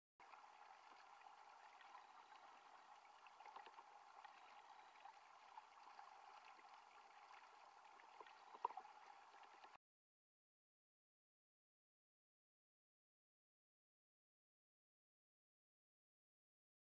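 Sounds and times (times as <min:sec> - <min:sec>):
muffled underwater water wash: 0:00.2 - 0:09.8.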